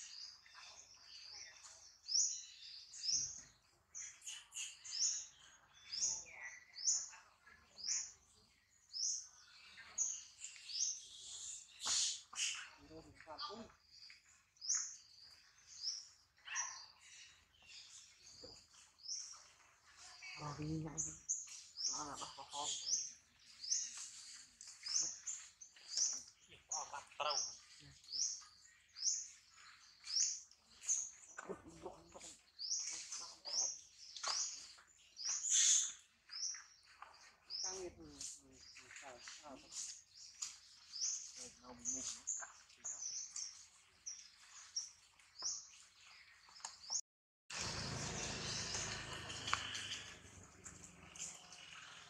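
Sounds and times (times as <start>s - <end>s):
animal chirps and squeals: 35.4s - 36.0s.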